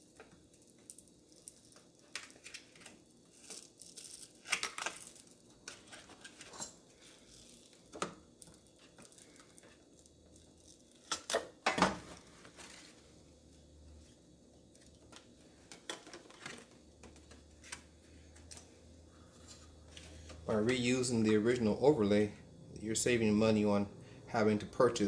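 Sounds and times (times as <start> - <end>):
plastic film peeling crackles: 0.0 - 6.1.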